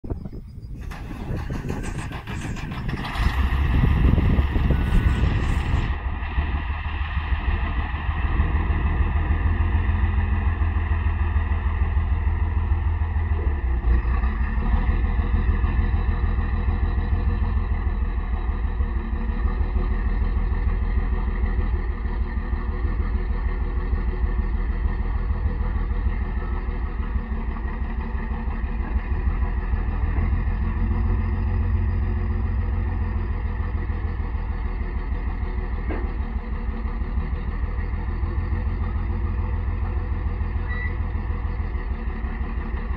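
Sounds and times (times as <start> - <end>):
diesel engine running: 0.0 - 42.9.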